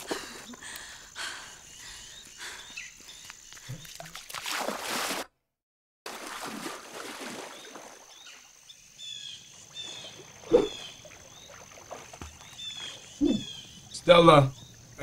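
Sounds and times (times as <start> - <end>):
birds chirping: 0.0 - 4.0, 7.5 - 15.0
water splashing from swimmer: 3.6 - 5.3, 6.1 - 8.5, 9.9 - 13.1.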